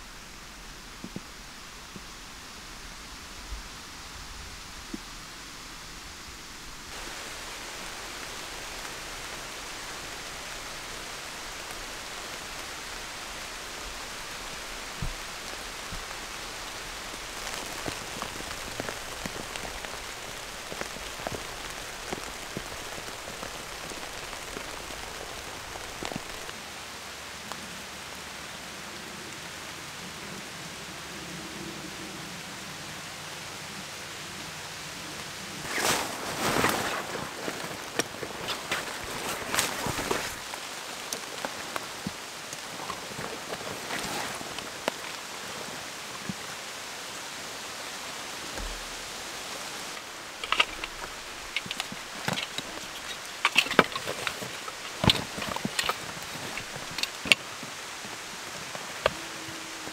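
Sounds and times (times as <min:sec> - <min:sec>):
rain falling on leaves: 0:00.0 - 0:59.9
raindrops tapping: 0:06.6 - 0:26.6, 0:48.5 - 0:59.9.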